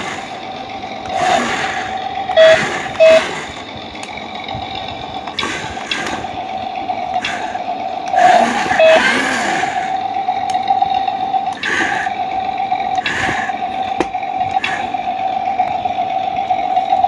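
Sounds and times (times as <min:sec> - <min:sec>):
steady high hum: 0:00.0 - 0:17.0
small electric motors whirring: 0:01.0 - 0:06.5, 0:07.1 - 0:10.7, 0:11.5 - 0:12.2.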